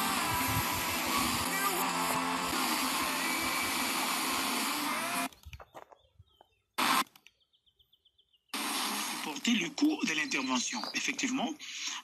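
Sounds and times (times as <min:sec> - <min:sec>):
radio static hiss: 0:00.0 - 0:05.3, 0:06.8 - 0:07.1, 0:08.6 - 0:12.0
static burst: 0:00.0 - 0:05.3, 0:06.8 - 0:07.1, 0:08.6 - 0:10.7.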